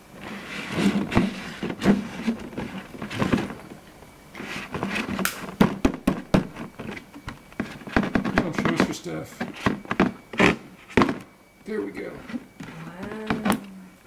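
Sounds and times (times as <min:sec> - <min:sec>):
plastic container handling: 0:04.4 - 0:11.3.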